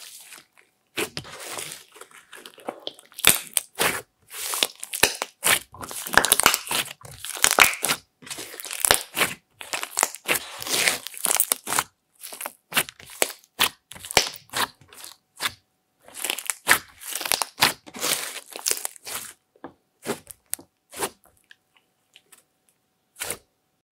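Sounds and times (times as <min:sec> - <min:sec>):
slime crackling and popping: 0:01.0 - 0:19.3.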